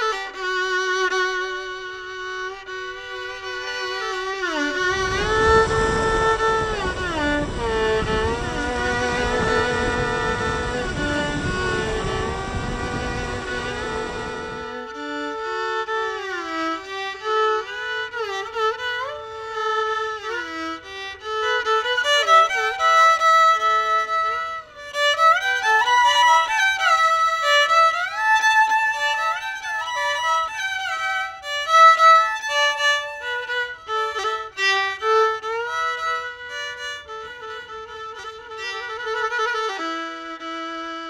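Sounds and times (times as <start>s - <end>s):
solo violin slow melody: 0.0s - 41.0s.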